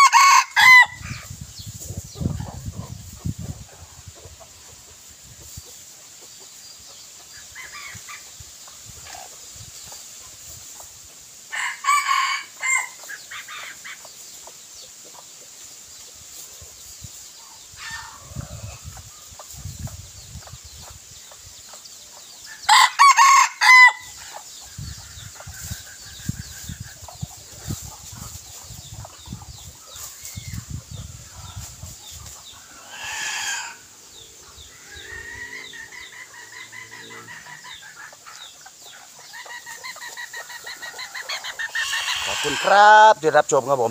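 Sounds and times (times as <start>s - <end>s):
rooster crowing: 0.0s - 1.0s, 11.5s - 13.0s, 22.6s - 24.2s, 32.8s - 33.9s, 34.7s - 37.9s
soft rooster call: 0.0s - 1.3s, 11.5s - 13.2s, 22.5s - 24.4s, 32.7s - 38.1s, 41.7s - 43.1s.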